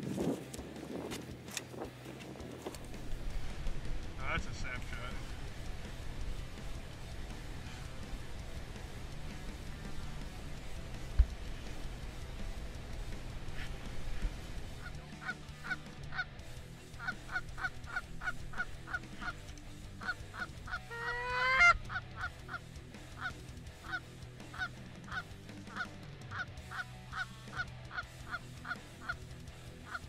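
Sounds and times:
drawn-out rising goose call: 0:13.6 - 0:16.3, 0:16.9 - 0:19.4, 0:20.0 - 0:30.0
geese honking: 0:14.7 - 0:19.4, 0:20.0 - 0:22.6, 0:23.2 - 0:30.0.

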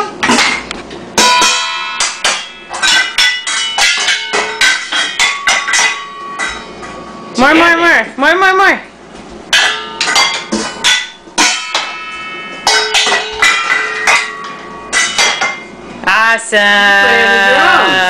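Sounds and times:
wooden spoons striking metal bowls: 0:00.0 - 0:07.8, 0:09.5 - 0:15.8.

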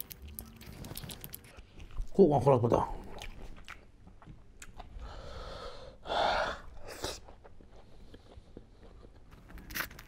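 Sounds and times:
faint chewing: 0:00.0 - 0:02.1, 0:03.0 - 0:05.0, 0:06.8 - 0:10.0.

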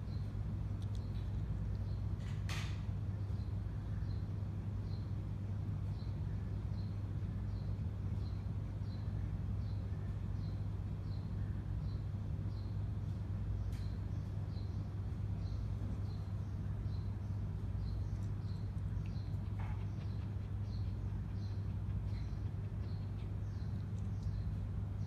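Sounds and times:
steady low hum: 0:00.0 - 0:25.0
cat panting with squeaks: 0:18.7 - 0:24.0.

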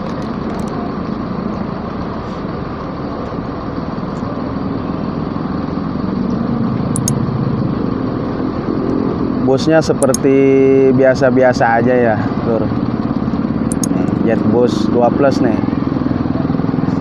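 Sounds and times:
bus engines idling: 0:00.0 - 0:17.0
sharp clicks: 0:07.0 - 0:07.2, 0:10.0 - 0:10.3, 0:13.7 - 0:14.2
motorcycle approaching: 0:10.9 - 0:17.0.

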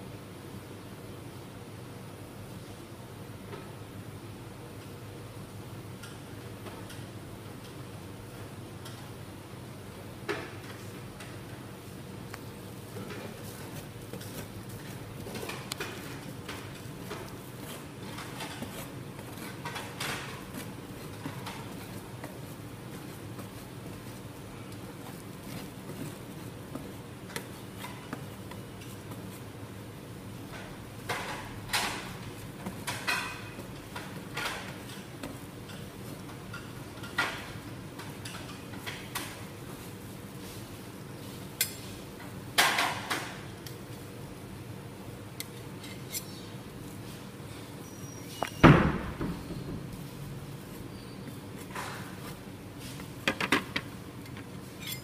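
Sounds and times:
metal spatulas scraping: 0:45.8 - 0:46.4, 0:54.6 - 0:55.0.

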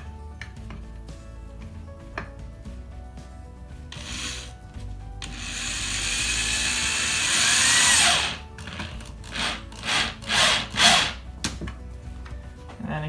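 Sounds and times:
electric drill driving screw: 0:03.9 - 0:04.5, 0:05.2 - 0:11.2.

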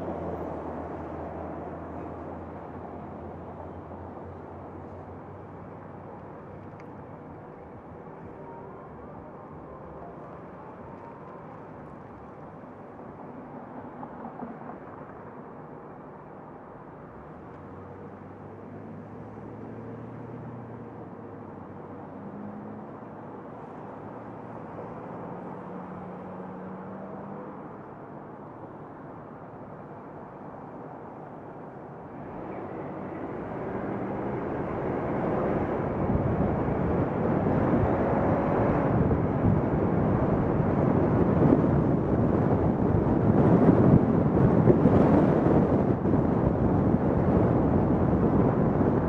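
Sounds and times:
tyre road rumble: 0:00.0 - 0:49.0
low engine hum: 0:29.9 - 0:49.0.

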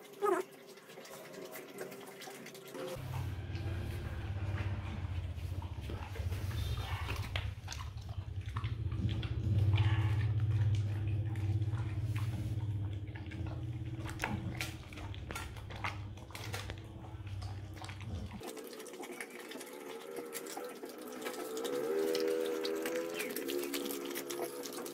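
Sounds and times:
dog lapping wetly: 0:00.0 - 0:24.9
steady low hum: 0:03.0 - 0:18.4
dog crunching kibble: 0:07.0 - 0:22.1.

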